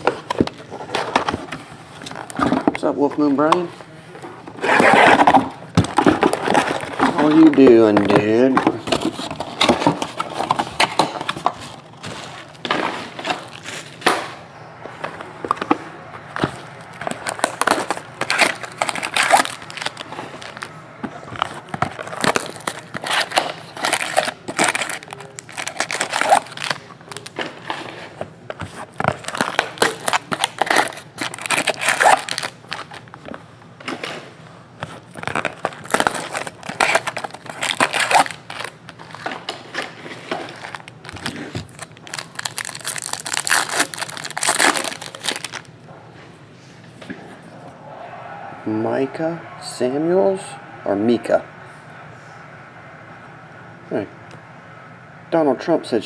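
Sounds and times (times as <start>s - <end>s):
plastic wrap crinkling and tearing: 16.4s - 20.8s, 21.4s - 28.0s, 28.6s - 33.2s, 34.9s - 45.7s.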